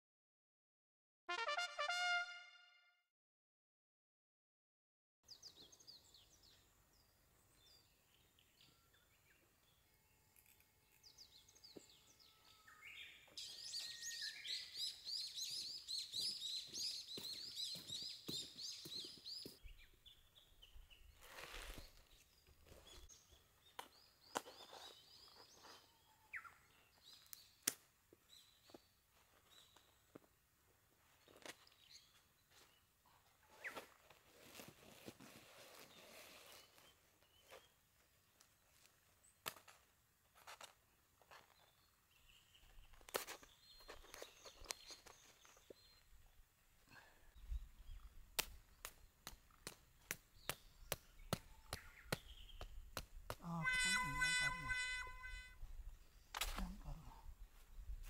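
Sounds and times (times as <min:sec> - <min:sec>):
faint birdsong: 0:05.2 - 0:34.3, 0:35.7 - 0:39.5, 0:40.7 - 0:58.0.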